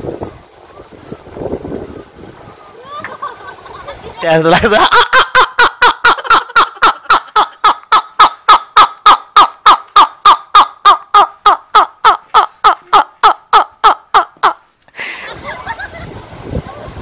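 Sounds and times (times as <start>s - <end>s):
man laughing hard: 2.8s - 8.2s, 11.8s - 16.0s.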